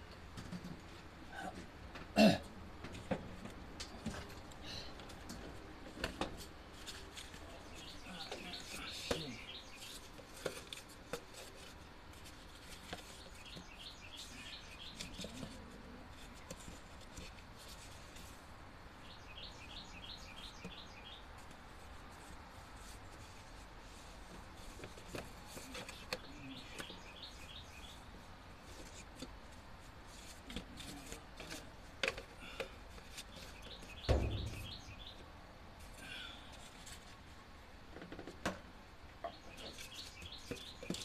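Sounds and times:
cardboard rustling and knocks: 0:34.0 - 0:34.8
heavy thump: 0:34.0 - 0:34.9.

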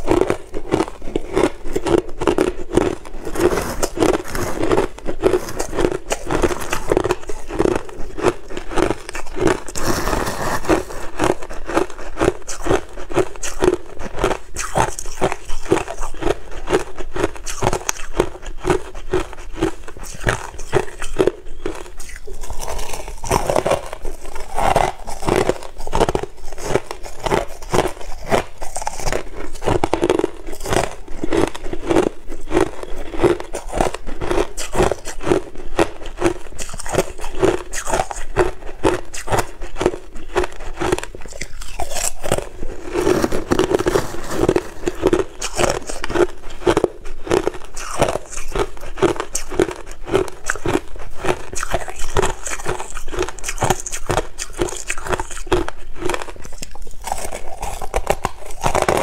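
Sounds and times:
crushed ice crunching: 0:00.0 - 0:35.4, 0:36.2 - 0:59.0.

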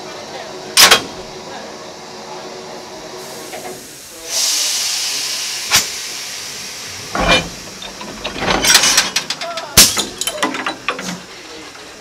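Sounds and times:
loud train hiss: 0:00.0 - 0:12.0
heavy clunk: 0:07.1 - 0:11.2.

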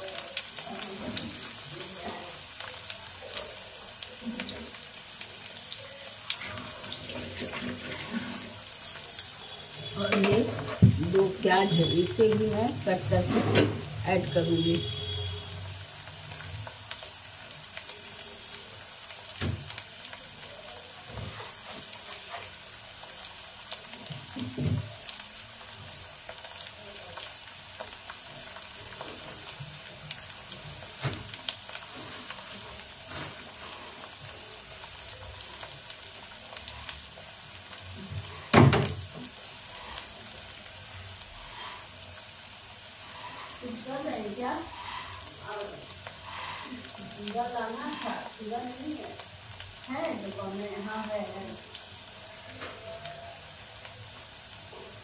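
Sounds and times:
vegetables frying in oil: 0:00.0 - 0:55.0
knock on a pan: 0:10.1 - 0:11.1, 0:38.5 - 0:39.0.

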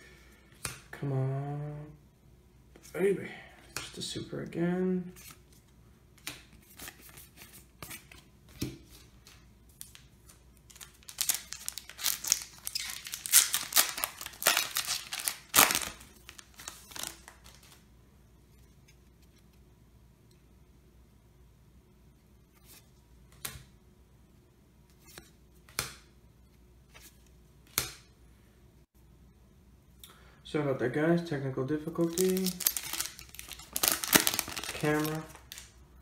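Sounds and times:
foil wrapper tearing and crinkling: 0:10.7 - 0:17.6, 0:32.0 - 0:35.7.

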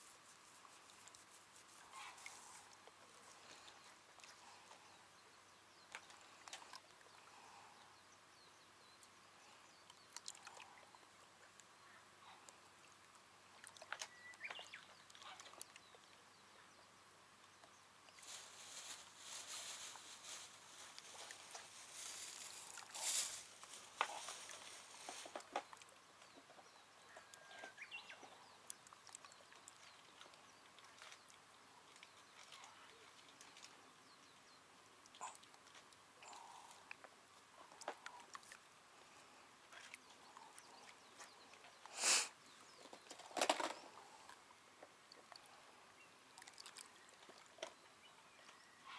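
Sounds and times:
rustle: 0:00.0 - 0:48.9.

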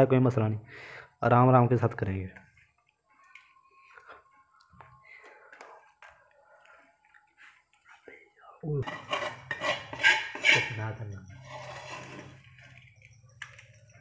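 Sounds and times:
steel tray clattering and scraping: 0:08.8 - 0:12.8.

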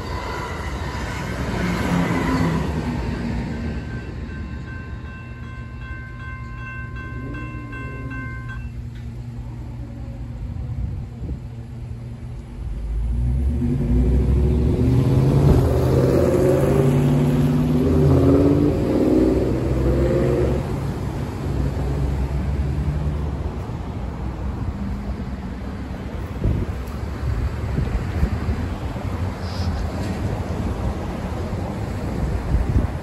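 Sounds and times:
car engines accelerating: 0:12.6 - 0:25.0.

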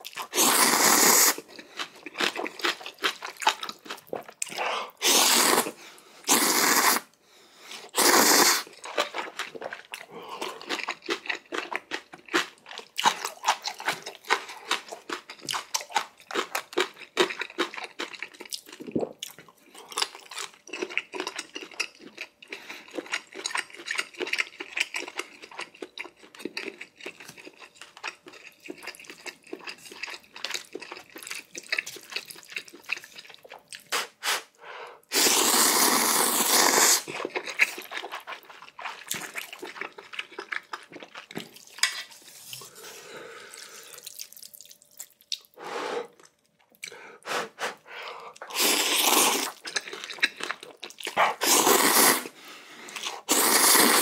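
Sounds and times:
loud noodle slurp: 0:00.2 - 0:01.4, 0:04.9 - 0:07.1, 0:07.9 - 0:08.7, 0:35.1 - 0:37.1, 0:48.4 - 0:49.6, 0:51.1 - 0:52.4, 0:53.0 - 0:54.0
wet smacking and sucking: 0:50.9 - 0:54.0.

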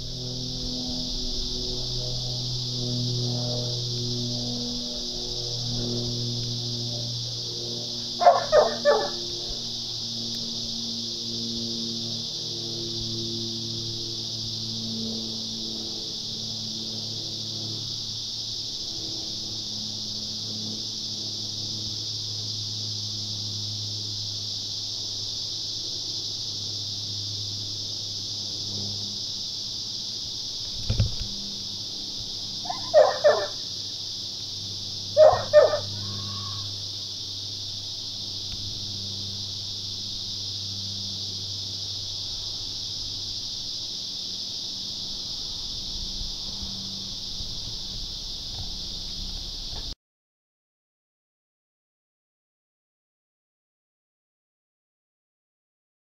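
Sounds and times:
cicada chorus buzzing: 0:00.0 - 0:50.0
short animal calls: 0:08.2 - 0:09.2, 0:32.6 - 0:33.6, 0:35.2 - 0:36.7.

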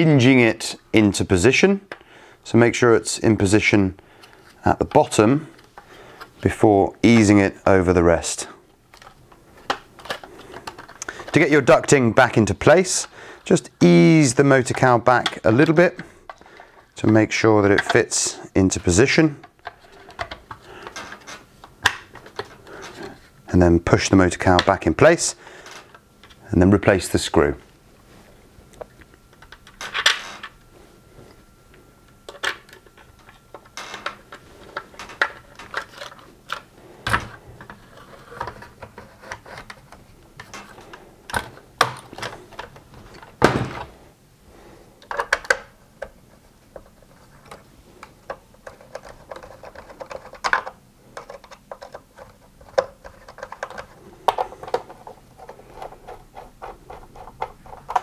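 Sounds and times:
plastic parts clicking and rattling: 0:08.9 - 0:12.0, 0:14.6 - 0:23.2, 0:32.3 - 0:44.0, 0:45.0 - 0:58.0.

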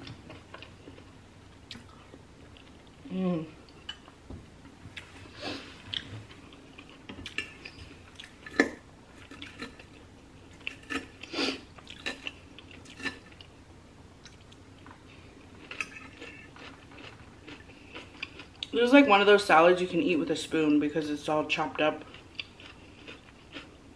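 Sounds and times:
chewing: 0:15.6 - 0:18.8, 0:22.1 - 0:23.8.

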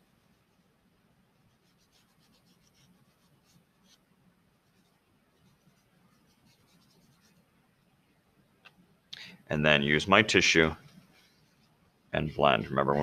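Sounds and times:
chalk scratching on paper: 0:00.0 - 0:00.7, 0:01.3 - 0:04.0, 0:04.6 - 0:07.5, 0:10.8 - 0:11.8
low room hum: 0:00.0 - 0:13.0.

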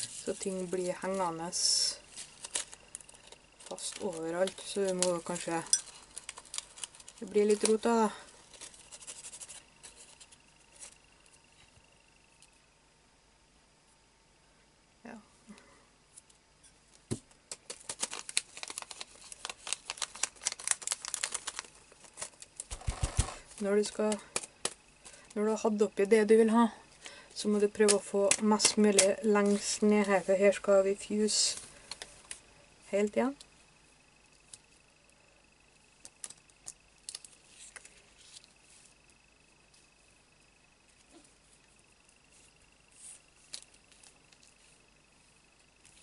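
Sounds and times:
plastic crinkling: 0:00.0 - 0:11.1, 0:17.5 - 0:25.4, 0:27.6 - 0:30.6, 0:36.0 - 0:39.1
soft plastic rustle: 0:00.0 - 0:11.7, 0:17.5 - 0:25.4, 0:27.0 - 0:33.1, 0:36.0 - 0:40.1, 0:40.8 - 0:46.0.

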